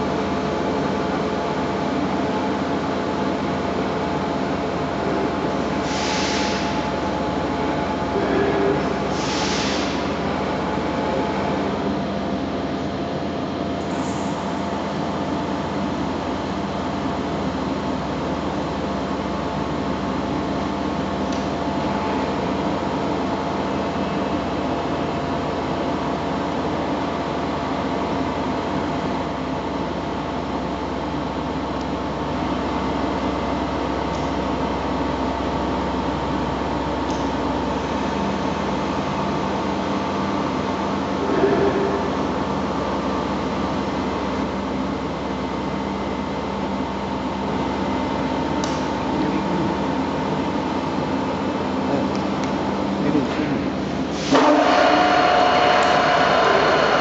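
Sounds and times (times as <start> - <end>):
steady hum tones: 0.0 - 57.0
milling machine running: 51.8 - 57.0.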